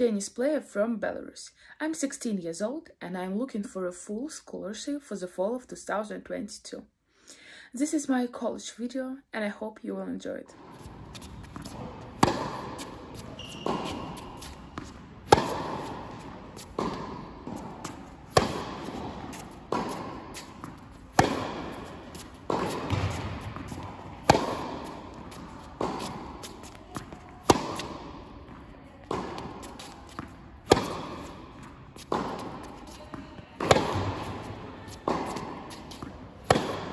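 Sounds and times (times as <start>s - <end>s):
rackets hitting tennis ball: 10.5s - 36.9s.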